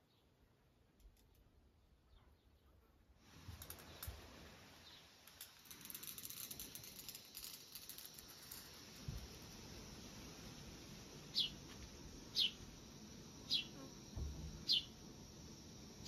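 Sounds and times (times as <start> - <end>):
insects clicking: 3.3 - 4.5, 5.2 - 16.0.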